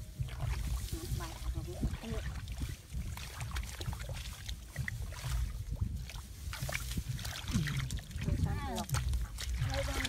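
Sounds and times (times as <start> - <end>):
low microphone rumble: 0.0 - 10.0
wet mud squelching and splashing: 0.0 - 10.0.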